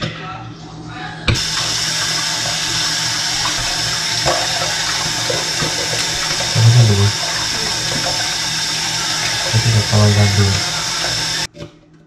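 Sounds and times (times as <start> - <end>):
faucet running into sink: 1.3 - 11.5.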